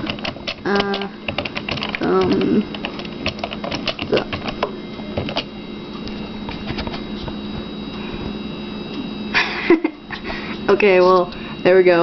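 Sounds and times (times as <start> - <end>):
keyboard keys clicking: 0.0 - 4.6
steady hum: 0.0 - 12.0.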